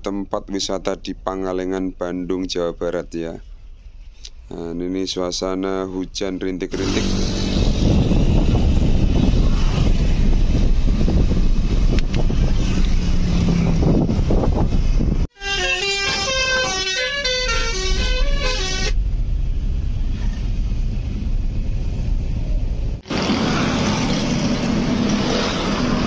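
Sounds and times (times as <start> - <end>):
car driving on wet road: 6.8 - 15.2, 19.0 - 26.0
vehicle horn playing a tune: 15.3 - 19.0.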